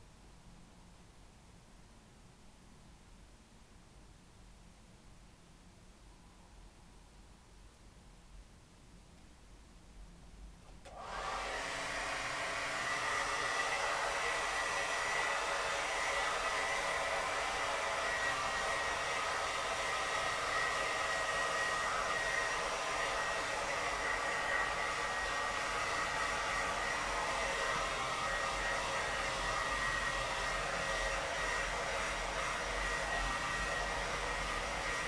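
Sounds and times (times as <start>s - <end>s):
hair dryer running: 10.7s - 35.0s.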